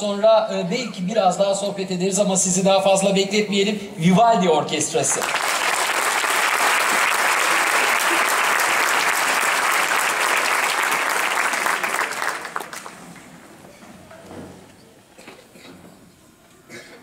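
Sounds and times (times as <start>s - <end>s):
audience applauding: 5.1s - 13.3s.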